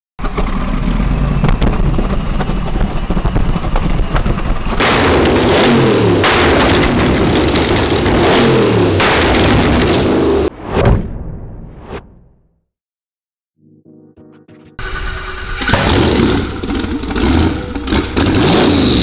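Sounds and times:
car engine running rough with crackles: 0.2 - 10.5, 14.8 - 19.0
engine revving hard: 4.8 - 10.5, 14.8 - 19.0.

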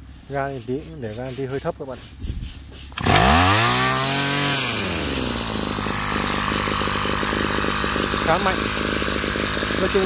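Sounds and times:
two-stroke brush cutter engine: 2.9 - 10.0.

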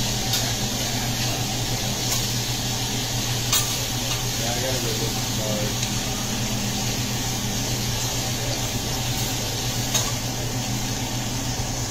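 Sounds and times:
food sizzling on a griddle: 0.0 - 11.9.

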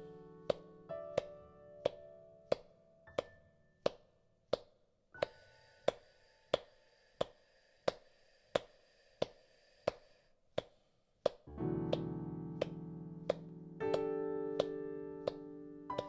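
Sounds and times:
soft held piano chord: 0.0 - 3.6, 11.5 - 16.0
hand claps: 1.2 - 8.0, 8.6 - 10.0, 10.6 - 16.0.

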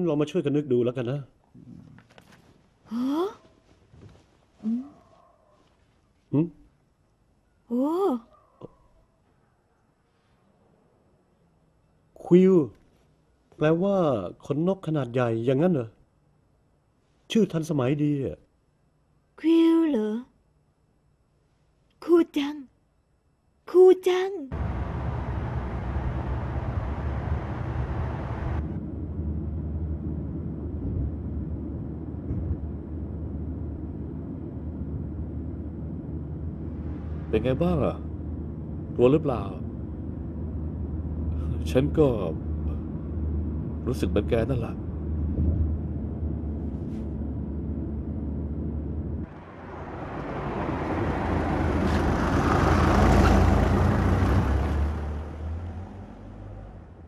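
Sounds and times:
vehicle engine rumble: 24.5 - 57.0.

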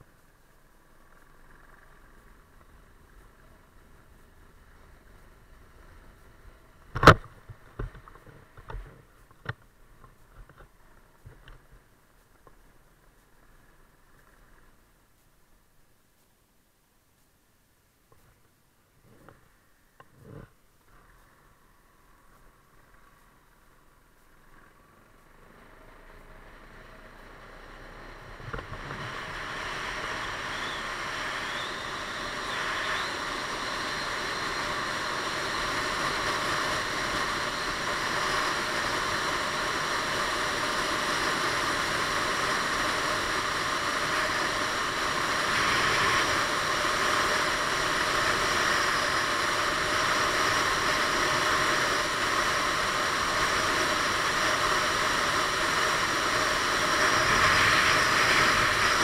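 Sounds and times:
wind rushing past helmet camera: 40.1 - 59.0.

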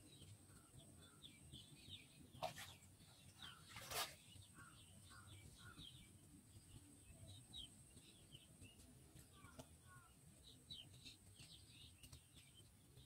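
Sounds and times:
small birds chirping: 0.0 - 13.0
water splashes: 3.4 - 4.2.

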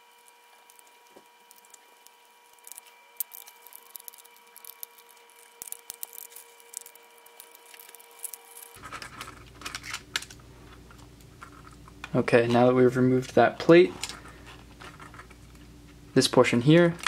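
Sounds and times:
faint electrical whine: 0.0 - 17.0.

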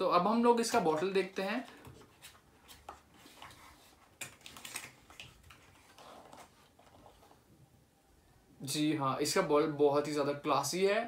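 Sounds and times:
cardboard rustling: 0.9 - 7.4.

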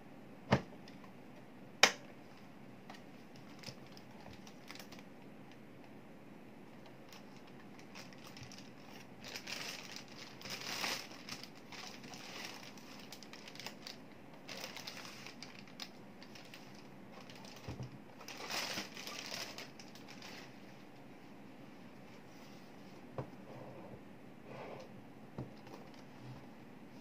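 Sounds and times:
plastic bag crinkling: 3.3 - 5.1, 7.1 - 20.6.

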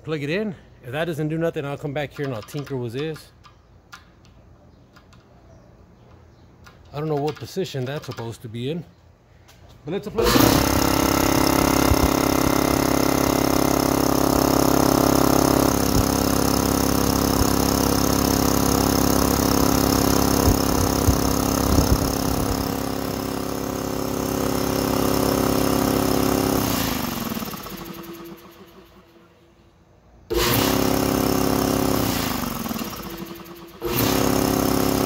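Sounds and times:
air compressor running: 10.1 - 29.4, 30.3 - 35.0
compressor spinning down: 10.1 - 29.4, 30.3 - 35.0.

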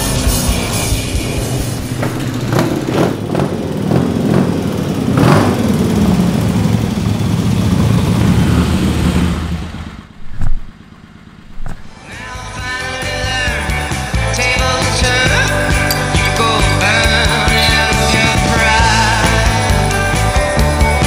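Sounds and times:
motorcycle engines revving: 0.0 - 21.0
loud thump: 10.2 - 10.8, 11.5 - 11.9.

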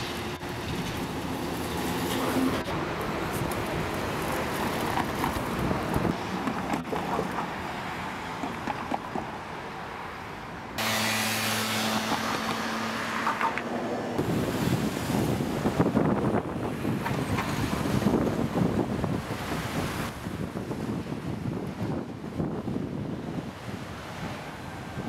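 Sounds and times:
cars driving past: 0.0 - 15.4.

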